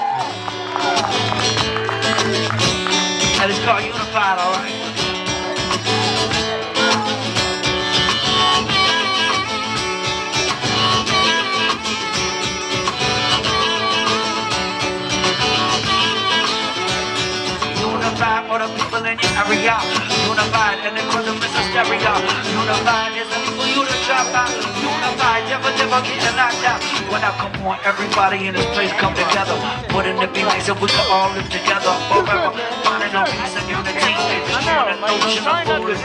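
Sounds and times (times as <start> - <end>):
acoustic guitar strumming: 0.0 - 36.0
drum kit beat: 0.0 - 36.0.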